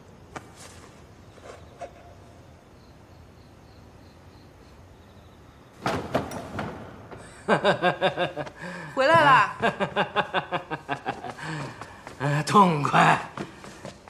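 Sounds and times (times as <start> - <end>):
crickets chirping: 0.0 - 14.0
wooden door clattering open: 5.8 - 7.4.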